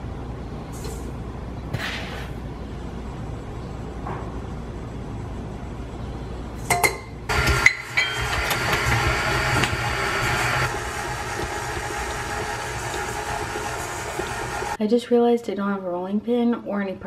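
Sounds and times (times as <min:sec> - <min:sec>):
stand mixer motor whining: 0:07.3 - 0:14.8.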